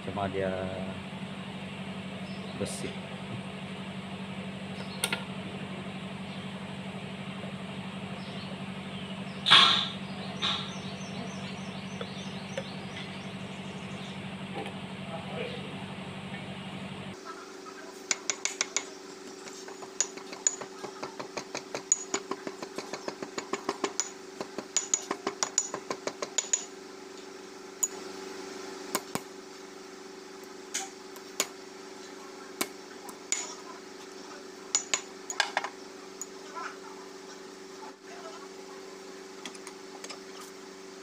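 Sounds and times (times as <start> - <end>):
hammer tapping on metal: 18.1 - 26.7, 34.8 - 36.3.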